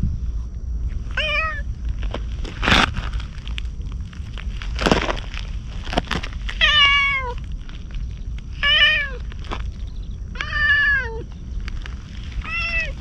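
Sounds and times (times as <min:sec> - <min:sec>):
rustling noise: 0:00.0 - 0:10.1, 0:11.2 - 0:13.0
cat meowing: 0:01.2 - 0:01.6, 0:06.6 - 0:07.4, 0:08.6 - 0:09.2, 0:10.4 - 0:11.3, 0:12.4 - 0:13.0.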